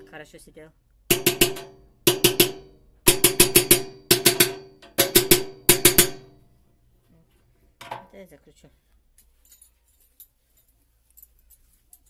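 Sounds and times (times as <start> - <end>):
hammer knocks on metal: 1.1 - 6.4.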